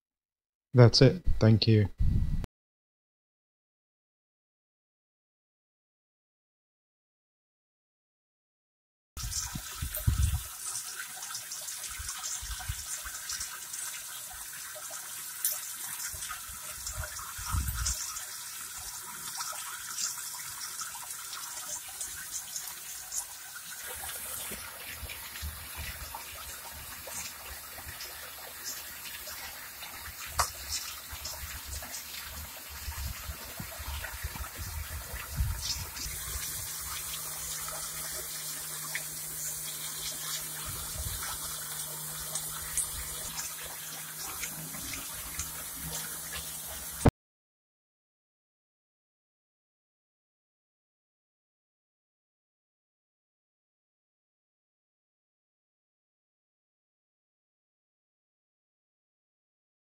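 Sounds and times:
water churning and splashing: 9.2s - 47.1s.

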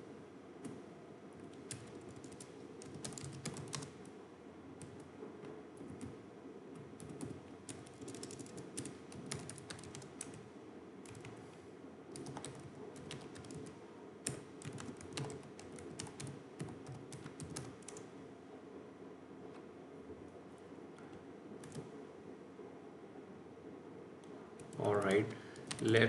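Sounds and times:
low background hum: 0.0s - 26.0s
keyboard typing: 1.4s - 4.1s, 4.8s - 6.2s, 6.8s - 10.4s, 11.0s - 11.5s, 12.1s - 18.1s, 21.6s - 21.9s, 24.2s - 26.0s.

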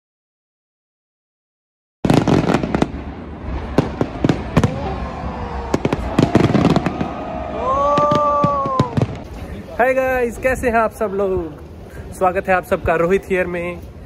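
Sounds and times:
fireworks bangs and crackling: 2.0s - 12.2s
crowd crying out: 3.8s - 9.2s.

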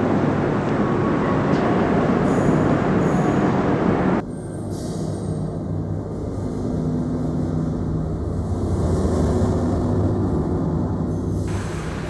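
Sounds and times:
low steady rumble: 5.4s - 12.0s.

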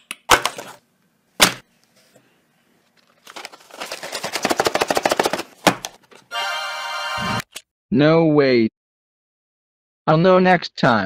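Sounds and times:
paperboard box crackling: 3.0s - 6.1s
paperboard box knock: 4.2s - 6.0s.

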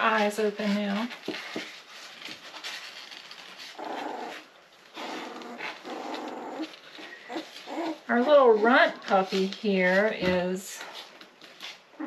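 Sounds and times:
puppies crying: 3.8s - 8.3s.

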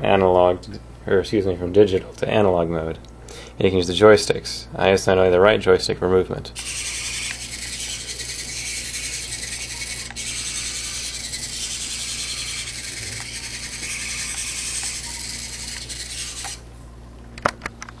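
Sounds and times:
robot wheel servos buzzing: 6.6s - 16.7s.

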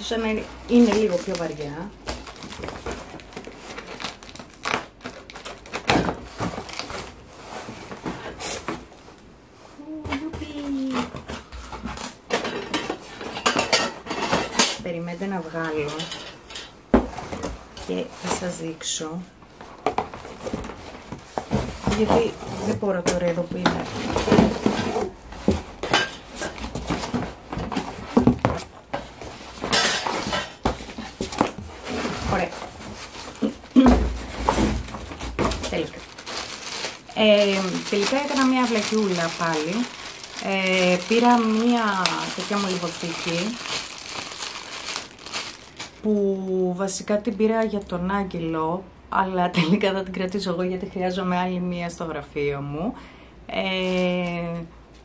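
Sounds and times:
paper rustling: 29.2s - 46.1s.

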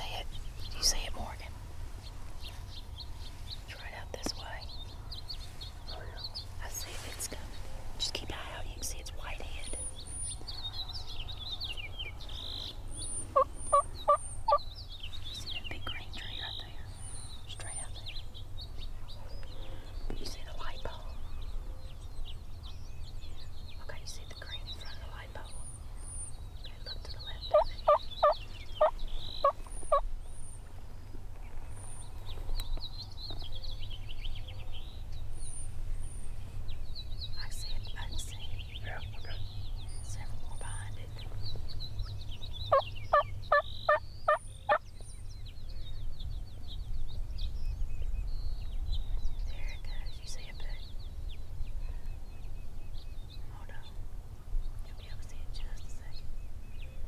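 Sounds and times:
songbirds chirping and whistling: 0.0s - 57.0s
turkey calling: 13.3s - 14.6s, 27.5s - 30.0s, 42.7s - 44.8s.

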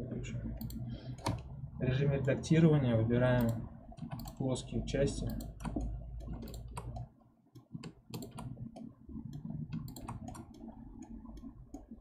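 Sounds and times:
scroll wheel notches: 0.5s - 1.6s, 3.3s - 12.0s
keyboard clicks: 0.6s - 1.5s, 3.4s - 4.4s, 5.2s - 12.0s.

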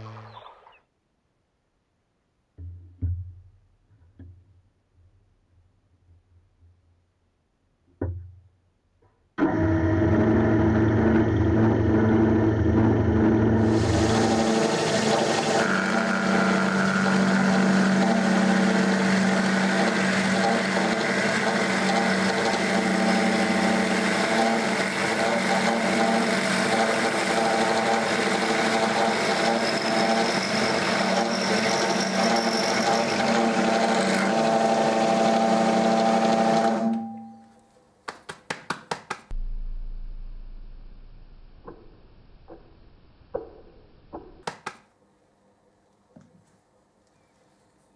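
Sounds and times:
drill press motor humming: 9.4s - 37.0s.

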